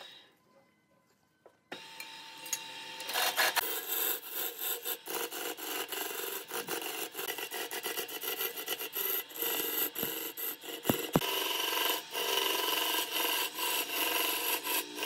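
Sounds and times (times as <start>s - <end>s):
wood lathe running: 3.0s - 15.0s
chisel scraping wood on lathe: 3.1s - 15.0s.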